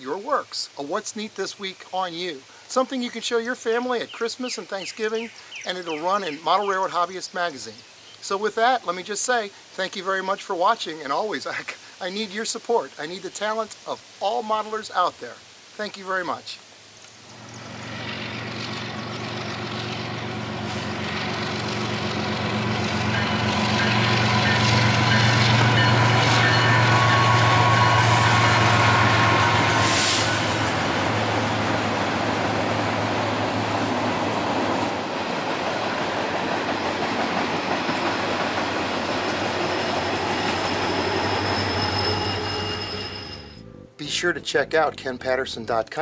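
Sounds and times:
locomotive engines droning: 0:17.2 - 0:43.8
train cars rolling over rails: 0:17.3 - 0:43.3.

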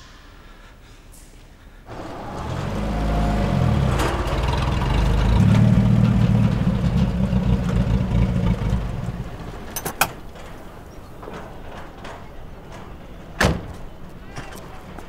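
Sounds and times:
car engine rumbling: 0:01.9 - 0:11.8.

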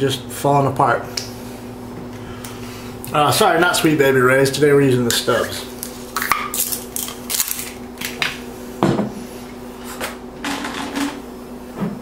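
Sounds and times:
steady low hum: 0:00.0 - 0:12.0
kitchen rustles and scrapes: 0:09.1 - 0:12.0.

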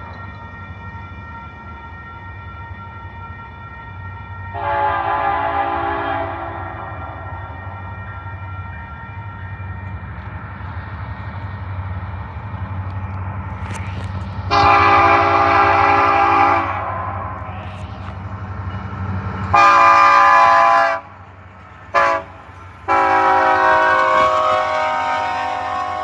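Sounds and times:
train rumble: 0:00.0 - 0:26.0
locomotive air horn blasts: 0:04.5 - 0:07.5, 0:14.5 - 0:17.4, 0:19.5 - 0:21.1, 0:21.9 - 0:26.0.

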